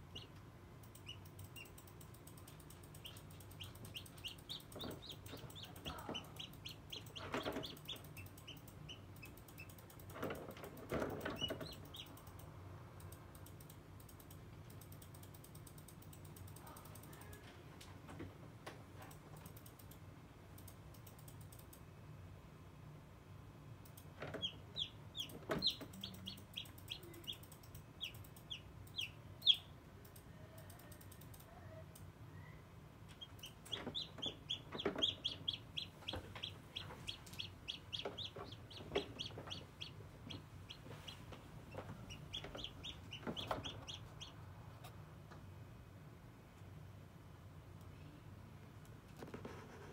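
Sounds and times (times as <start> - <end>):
chick peeping: 0.0 - 1.9, 2.9 - 9.8, 11.0 - 12.3, 24.2 - 29.7, 33.1 - 44.4.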